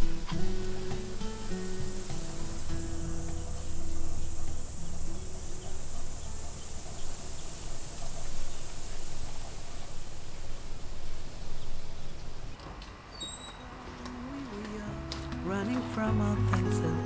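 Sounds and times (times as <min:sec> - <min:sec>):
background music: 0:00.0 - 0:07.2, 0:14.1 - 0:17.0
insects chirring: 0:00.0 - 0:12.6.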